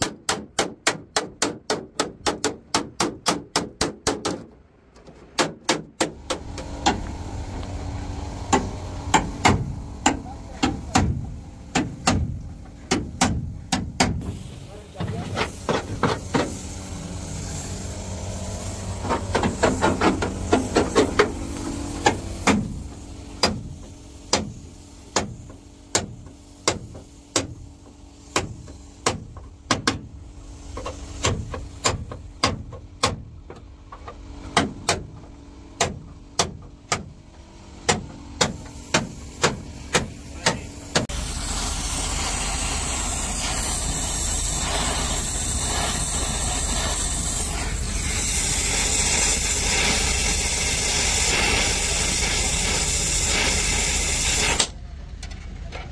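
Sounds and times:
hammer on sheet steel: 0:00.0 - 0:04.5, 0:08.5 - 0:14.3, 0:23.4 - 0:27.6, 0:28.3 - 0:30.1, 0:31.2 - 0:33.2, 0:37.8 - 0:41.2
steady hiss: 0:06.2 - 0:32.4, 0:38.4 - 0:54.7.

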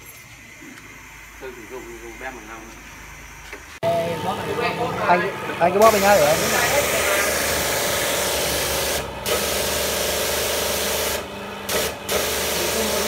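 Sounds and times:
pump humming: 0:00.0 - 0:13.0
pressure washer water jet hissing: 0:04.4 - 0:13.0.

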